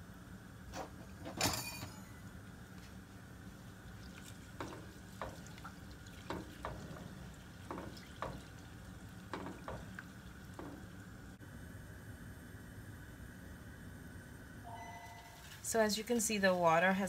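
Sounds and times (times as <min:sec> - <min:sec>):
steady low hum: 0:00.0 - 0:17.0
spatula stirring boiling berries: 0:02.8 - 0:11.4
spatula knocking against metal pot: 0:06.3 - 0:08.5, 0:09.3 - 0:10.0.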